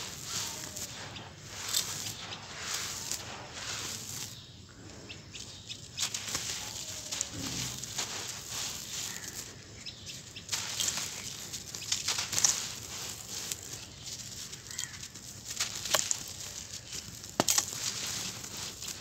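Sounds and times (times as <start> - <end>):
gritty sand crunching by hand: 0.0 - 19.0
sand grains trickling: 0.0 - 19.0.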